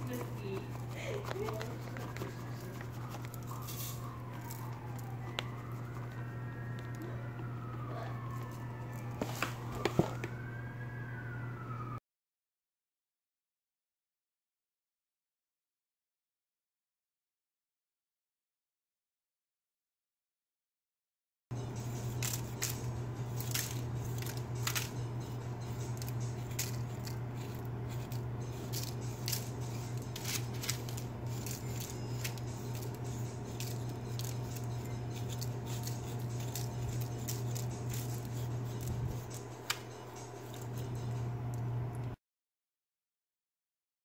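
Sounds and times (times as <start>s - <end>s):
metal spoon scraping crispy skin: 0.0s - 5.0s, 21.8s - 41.0s
steady low hum: 0.0s - 9.8s, 21.5s - 42.2s.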